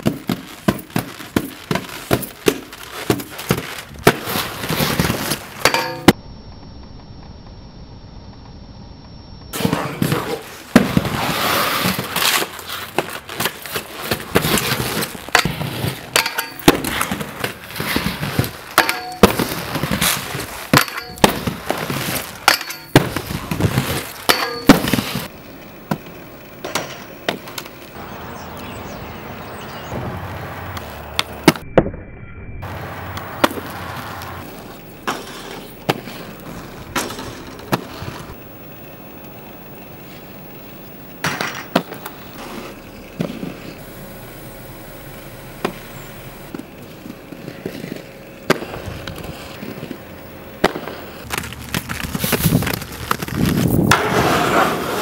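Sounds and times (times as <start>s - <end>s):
inline skates rolling on pavement: 0.0s - 6.2s, 9.5s - 31.6s, 32.6s - 55.0s
sharp clacks of skates: 0.0s - 6.2s, 9.5s - 25.3s, 29.5s - 31.6s, 32.6s - 38.4s, 41.2s - 43.8s, 46.4s - 55.0s
skates grinding metal handrails: 0.0s - 6.2s, 9.6s - 28.0s, 29.6s - 31.6s, 32.6s - 38.4s, 41.2s - 43.8s, 45.6s - 55.0s.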